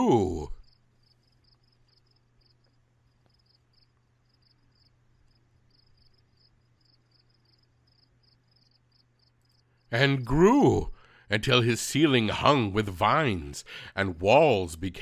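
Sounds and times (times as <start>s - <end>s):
faint low hum: 0.0s - 15.0s
crickets chirping: 0.1s - 10.0s.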